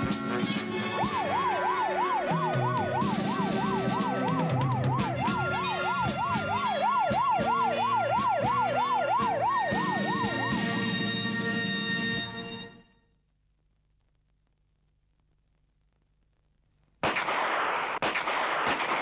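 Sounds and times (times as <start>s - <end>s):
background music: 0.0s - 13.0s
police siren wailing: 0.8s - 11.9s.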